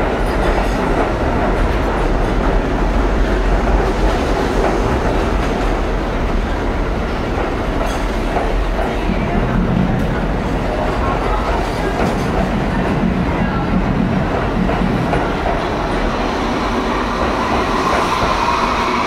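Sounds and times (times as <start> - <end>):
subway train wheels on rails: 0.0 - 19.0.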